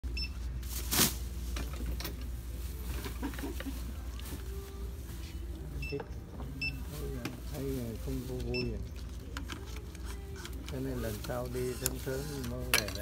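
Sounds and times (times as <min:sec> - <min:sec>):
plastic bag rustling: 0:06.8 - 0:09.3.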